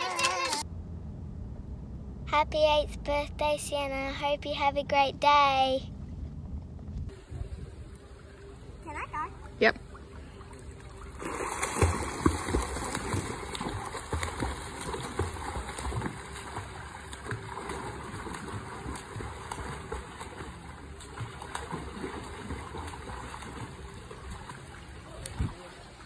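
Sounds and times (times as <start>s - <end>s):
child splashing in pool: 0.0s - 0.6s, 10.7s - 25.9s.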